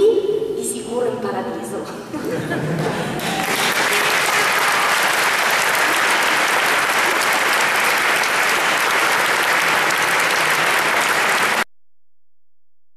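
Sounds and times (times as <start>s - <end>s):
crowd applauding: 2.8s - 11.7s.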